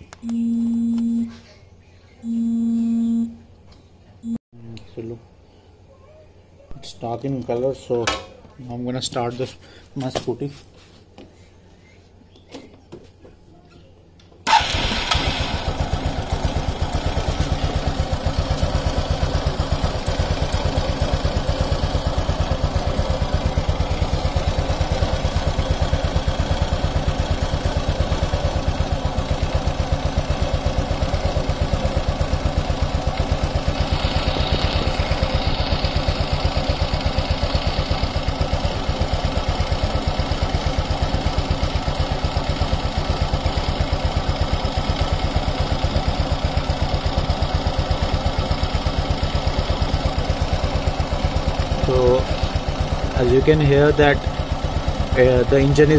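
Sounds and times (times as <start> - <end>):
scooter engine starting and idling: 2.2 - 3.3, 14.4 - 55.9.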